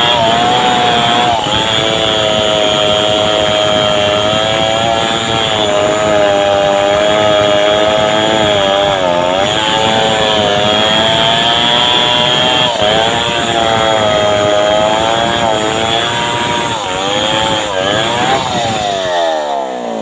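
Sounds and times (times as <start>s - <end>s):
chainsaw cutting wood: 0.0s - 20.0s.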